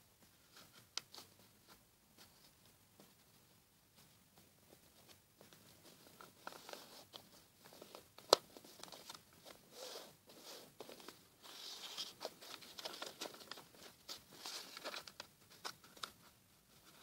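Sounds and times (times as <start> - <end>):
paper rustling and creasing: 4.8 - 17.0.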